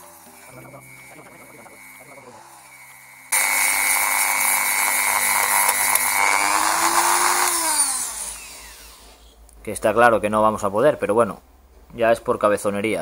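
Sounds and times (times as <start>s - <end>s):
rotary tool sanding plastic: 0.0s - 9.2s.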